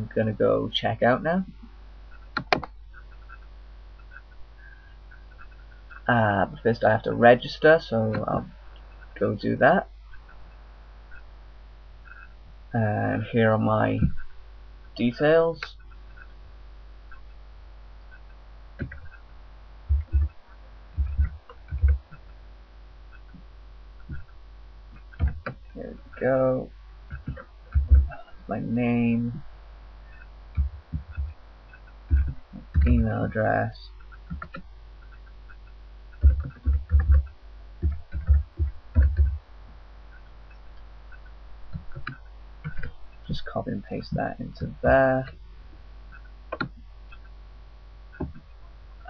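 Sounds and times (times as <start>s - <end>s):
mains hum: 0.0s - 49.0s
keyboard keystrokes: 2.4s - 3.4s, 36.2s - 39.4s
typing on a computer keyboard: 21.0s - 22.2s, 34.1s - 39.4s.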